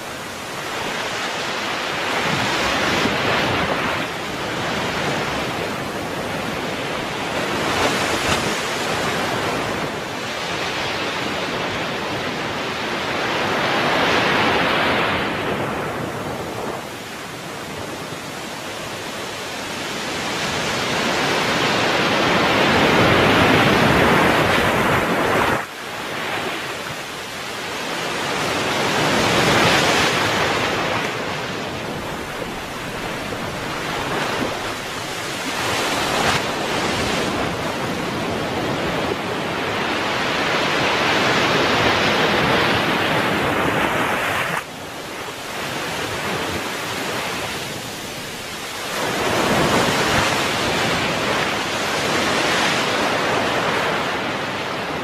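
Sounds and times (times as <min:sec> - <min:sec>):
surf washing up a beach: 0:00.0 - 0:55.0.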